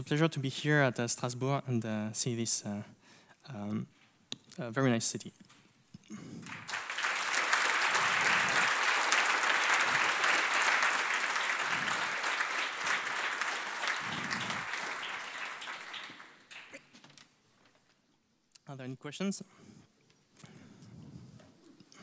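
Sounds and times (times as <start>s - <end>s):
audience applause: 6.4s - 16.9s.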